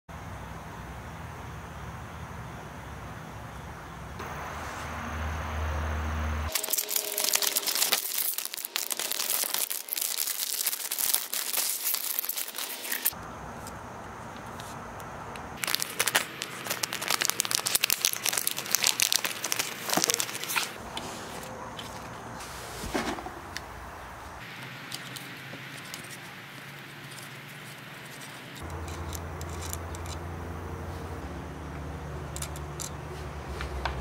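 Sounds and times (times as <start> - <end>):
plastic packaging crinkling: 6.5 - 13.2, 15.6 - 20.8.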